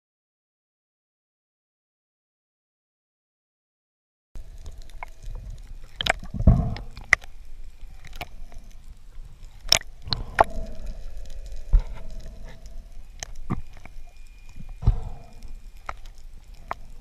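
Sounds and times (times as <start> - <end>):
sea water sloshing and gurgling: 4.4 - 17.0.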